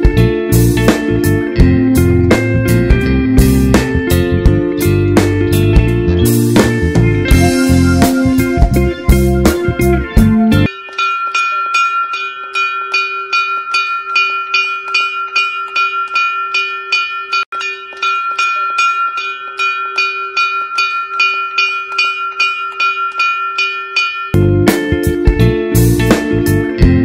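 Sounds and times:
metal bell rung rapidly: 10.6 - 24.4.

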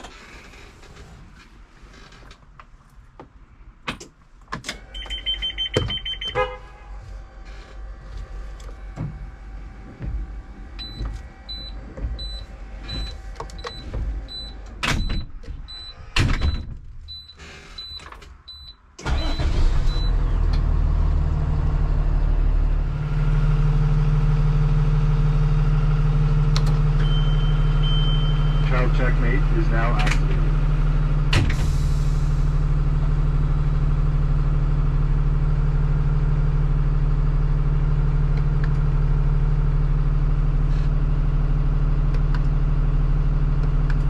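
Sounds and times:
diesel engine starting and idling: 3.7 - 44.0
warning beeps: 5.0 - 6.4, 27.0 - 28.8.

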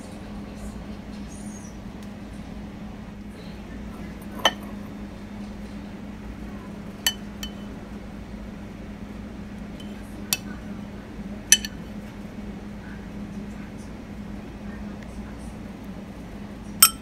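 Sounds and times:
steady low hum: 0.0 - 17.0
metal spoon clinking on ceramic bowl: 4.2 - 4.8, 7.1 - 7.6, 11.5 - 11.8.

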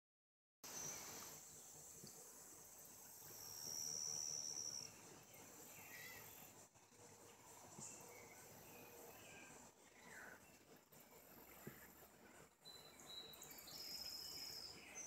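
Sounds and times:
high-pitched insect trilling: 2.8 - 6.6.

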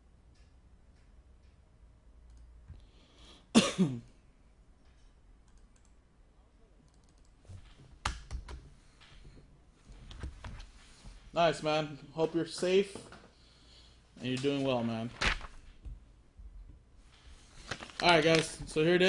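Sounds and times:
man coughing: 3.5 - 4.1.

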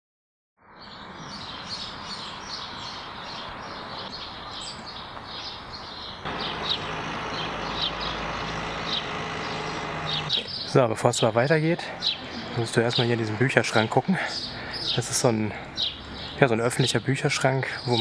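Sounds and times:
outdoor background noise: 0.6 - 18.0
small birds chirping: 0.7 - 18.0.

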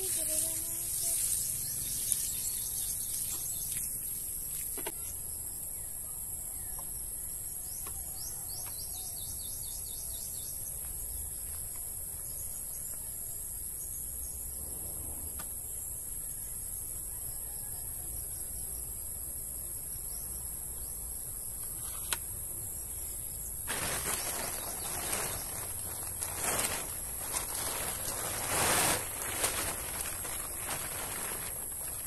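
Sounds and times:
water sprinkling from watering can: 0.0 - 4.7
bird chirps: 0.0 - 5.2
high insect drone: 0.0 - 5.8.

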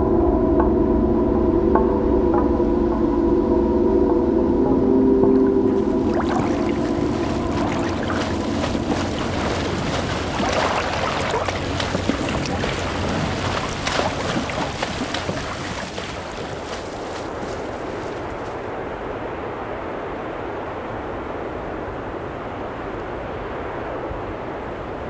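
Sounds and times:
water sloshing and bubbling: 5.2 - 18.4.

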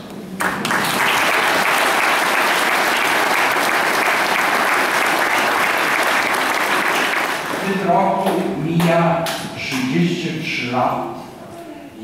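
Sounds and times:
congregation applauding: 0.4 - 9.4.

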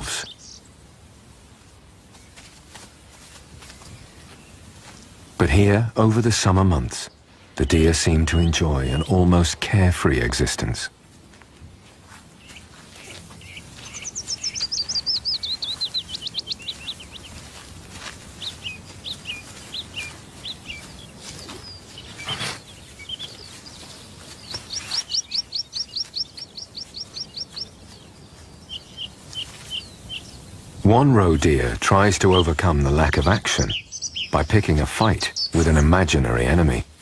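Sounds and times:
songbird trilling and chirping: 7.7 - 9.2, 12.4 - 30.5, 31.3 - 36.0.

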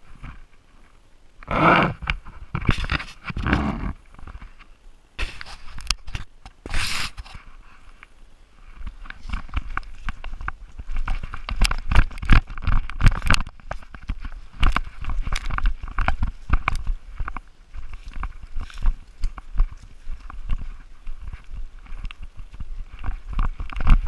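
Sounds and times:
leaf crunching: 8.6 - 24.0.

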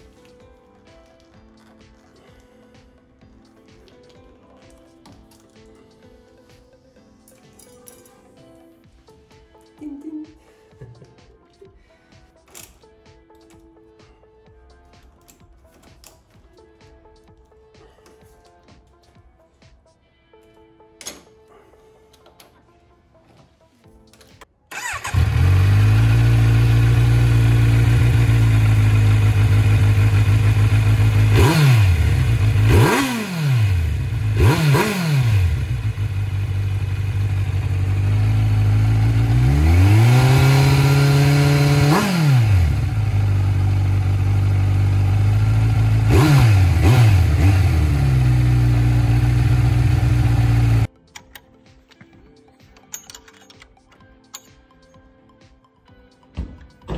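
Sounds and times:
motorcycle engine idling and revving: 24.7 - 50.9.

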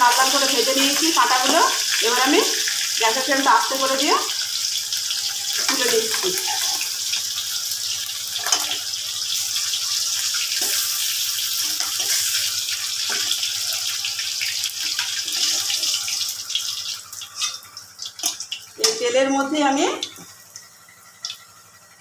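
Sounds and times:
hot oil sizzling in a wok: 0.0 - 22.0
spatula scraping metal: 17.4 - 17.6.

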